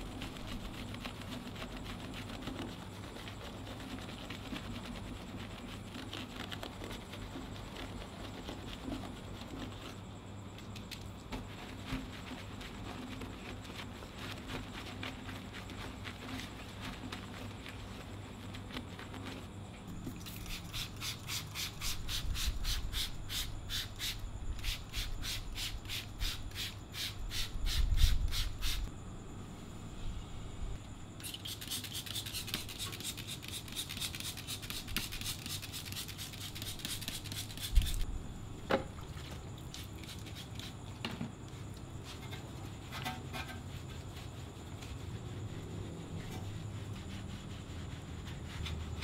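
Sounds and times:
brush scrubbing foam: 0.0 - 10.2, 10.8 - 28.9, 31.2 - 38.1, 39.2 - 40.9, 41.6 - 49.0
trigger sprayer hissing: 20.2 - 28.9.

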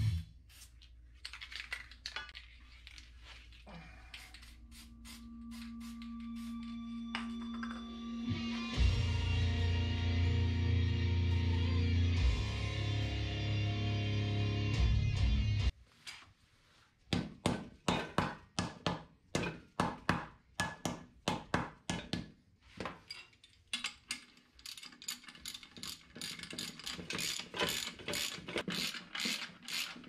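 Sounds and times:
hand ratchet clicking: 23.8 - 30.0.

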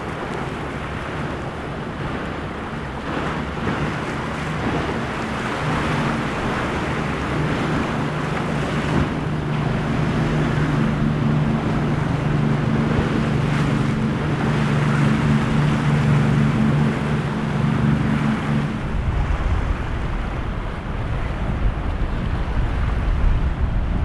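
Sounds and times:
boat engines droning: 0.0 - 24.0
hull crashing through waves: 0.0 - 24.0
waves and spray washing: 0.0 - 24.0
wind buffeting microphone: 0.0 - 24.0.

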